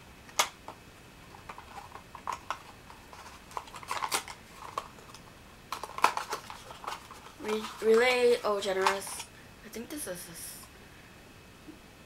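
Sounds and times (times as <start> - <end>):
hands handling cardboard carton: 1.4 - 9.2.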